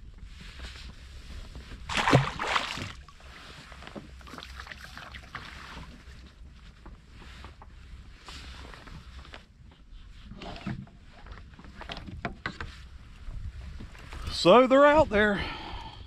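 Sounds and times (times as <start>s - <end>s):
fish scuffling in kayak: 0.5s - 6.6s
light knocks and rustles: 5.8s - 12.9s.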